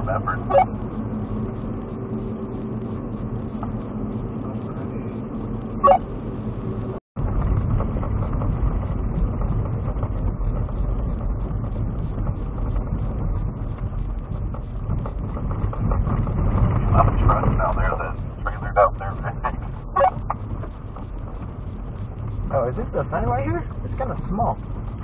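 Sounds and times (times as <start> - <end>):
car engine and road rumble: 0.0 - 25.0
tyres rolling on gravel: 7.2 - 25.0.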